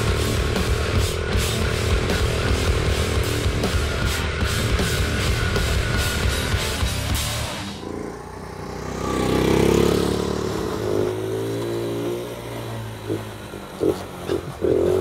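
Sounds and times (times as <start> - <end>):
small motorbike engine revving: 7.5 - 15.0.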